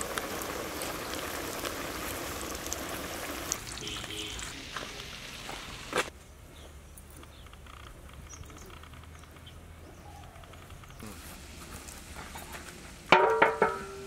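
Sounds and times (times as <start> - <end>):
chicken deep-frying in oil: 0.0 - 6.1, 11.1 - 14.0
oil crackles: 0.0 - 6.1, 10.6 - 13.2.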